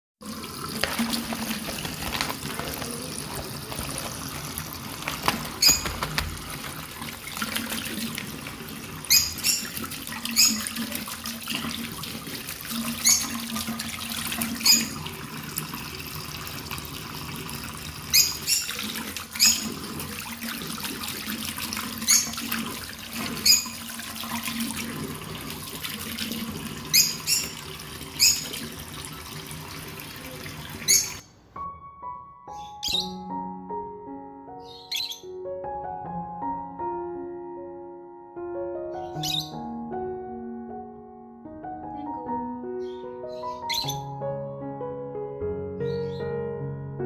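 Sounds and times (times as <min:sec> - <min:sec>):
tap water running into basin: 0:00.2 - 0:31.2
bird chirping: 0:09.1 - 0:10.8, 0:13.0 - 0:13.4, 0:18.1 - 0:18.8, 0:19.4 - 0:19.7, 0:26.9 - 0:27.6, 0:28.2 - 0:28.5, 0:30.9 - 0:31.4, 0:32.5 - 0:33.4, 0:34.6 - 0:35.4, 0:38.9 - 0:39.7, 0:42.8 - 0:44.2, 0:45.8 - 0:46.4.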